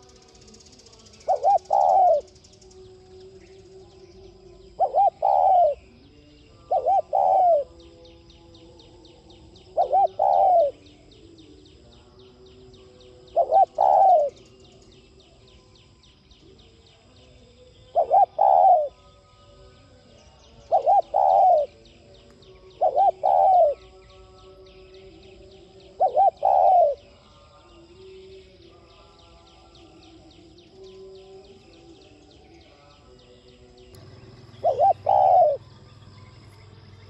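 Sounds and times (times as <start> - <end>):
dove cooing: 0.9 - 2.7, 4.2 - 6.0, 6.6 - 7.9, 8.8 - 11.3, 13.2 - 14.8, 17.9 - 19.0, 20.6 - 24.3, 25.2 - 27.2, 34.0 - 36.7.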